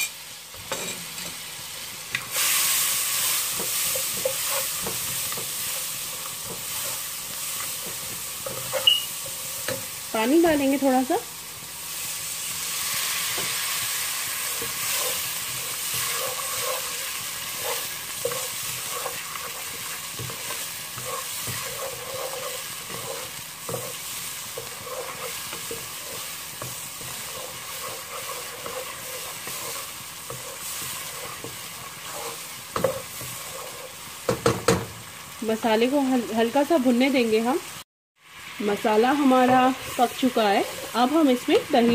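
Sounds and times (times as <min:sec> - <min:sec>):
spice paste sizzling in hot oil: 0:00.0 - 0:41.9
wooden spoon stirring: 0:03.3 - 0:09.9, 0:14.5 - 0:34.5, 0:39.1 - 0:41.9.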